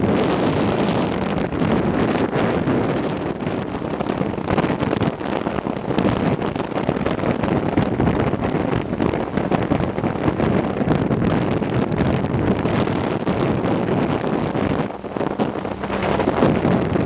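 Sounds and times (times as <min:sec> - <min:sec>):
boat motor running: 0:00.0 - 0:17.0
water along hull: 0:00.0 - 0:17.0
wind buffeting microphone: 0:00.0 - 0:17.0.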